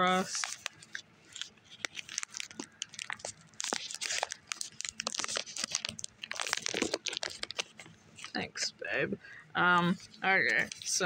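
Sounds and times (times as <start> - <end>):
wrapper crinkling: 0.0 - 8.6
chocolate snapping: 1.8 - 7.7.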